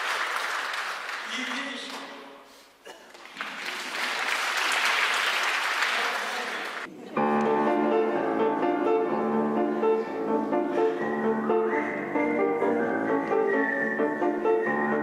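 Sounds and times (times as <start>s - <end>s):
audience applause: 0.0s - 2.2s, 3.1s - 6.9s
grand piano playing: 7.2s - 15.0s.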